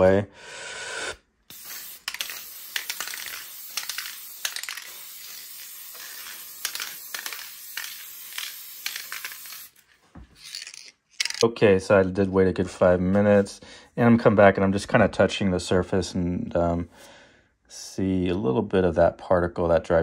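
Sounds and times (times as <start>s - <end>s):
aerosol can spraying hiss: 1.5s - 9.8s
small clicks and ticks: 6.0s - 9.7s.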